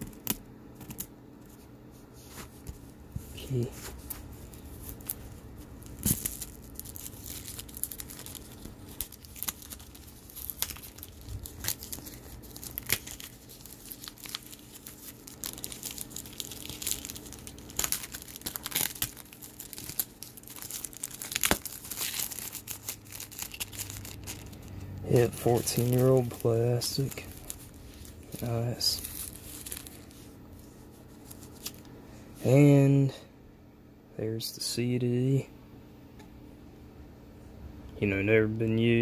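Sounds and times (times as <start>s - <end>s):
plastic blister pack crinkling: 3.4s - 32.0s.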